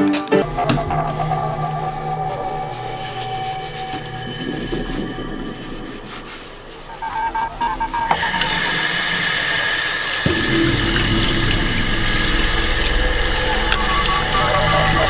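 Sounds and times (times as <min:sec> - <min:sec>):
hands scrubbing under water: 0:00.4 - 0:15.0
tap water running into sink: 0:08.2 - 0:15.0.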